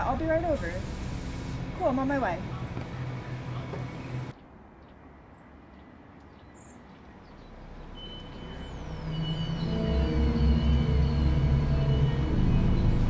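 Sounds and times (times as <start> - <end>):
low traffic rumble: 0.0 - 13.0
eerie horror-film drone: 7.5 - 13.0
high steady tone: 7.8 - 13.0.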